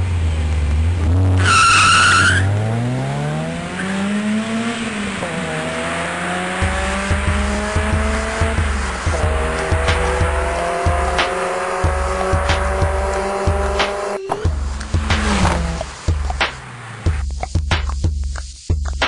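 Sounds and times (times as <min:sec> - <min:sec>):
car engine revving: 0:00.0 - 0:19.0
tyres squealing: 0:01.4 - 0:02.5.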